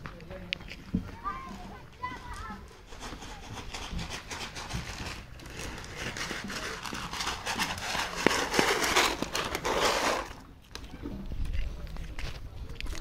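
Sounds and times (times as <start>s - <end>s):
rustling: 0.9s - 10.5s.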